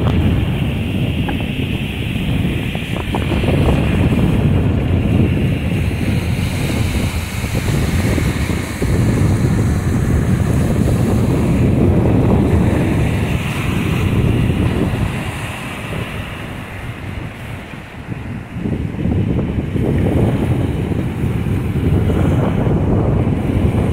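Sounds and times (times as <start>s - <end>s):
wind buffeting microphone: 0.0s - 23.9s.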